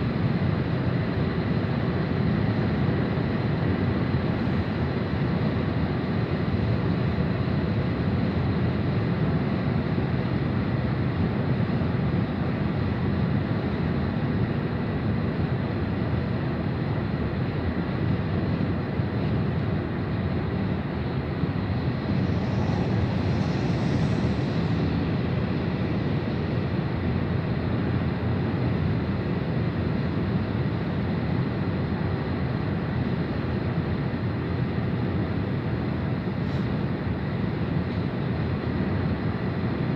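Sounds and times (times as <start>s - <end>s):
road and engine rumble: 0.0s - 39.9s
brief hiss: 22.1s - 25.5s.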